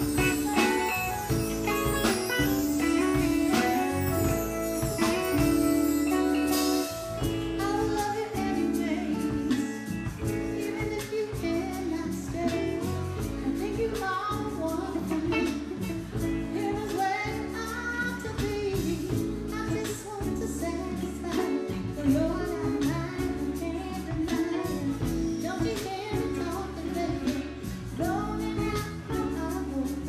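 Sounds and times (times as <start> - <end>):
drum kit with cymbals: 0.0 - 30.0
electric guitar: 0.0 - 30.0
woman singing: 0.0 - 30.0.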